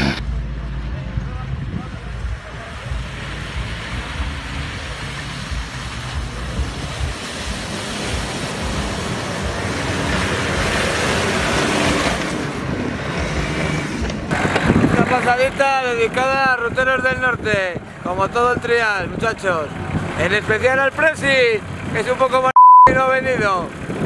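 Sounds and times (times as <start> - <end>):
loud rushing noise: 0.0 - 1.2, 2.4 - 17.6
engine running low: 0.0 - 24.0.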